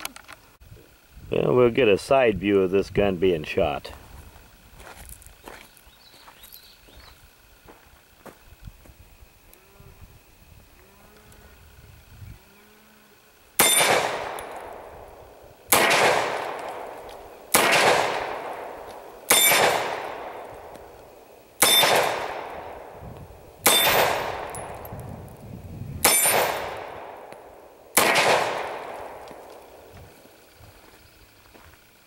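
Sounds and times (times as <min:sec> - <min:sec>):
pistol shots with echo: 0:13.6 - 0:23.0, 0:23.6 - 0:24.9, 0:26.0 - 0:29.9.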